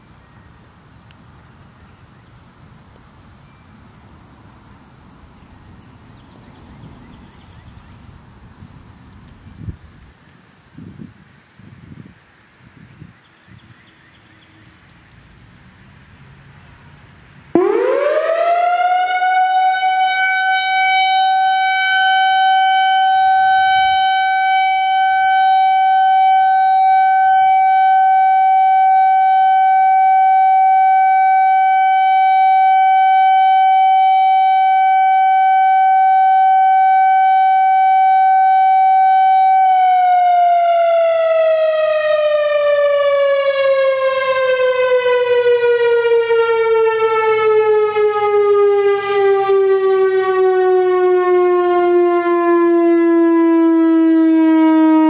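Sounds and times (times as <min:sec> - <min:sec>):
electronic siren steady tone: 0:17.6 - 0:55.0.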